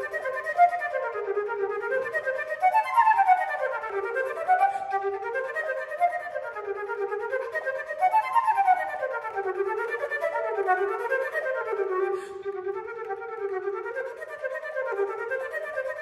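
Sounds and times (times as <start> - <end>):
flute playing fast runs: 0.0 - 16.0.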